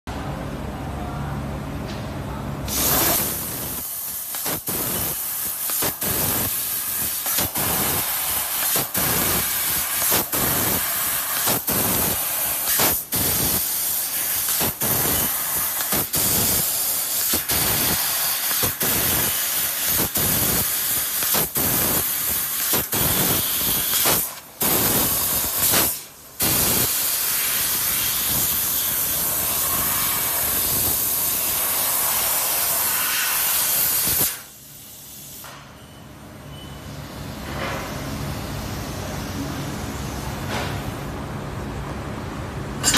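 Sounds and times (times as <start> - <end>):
gas hissing from laser nozzle: 2.7 - 35.5.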